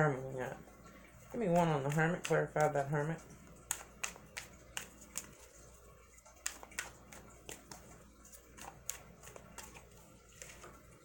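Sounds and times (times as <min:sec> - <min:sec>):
cards being shuffled: 0:03.5 - 0:05.6, 0:06.3 - 0:10.9.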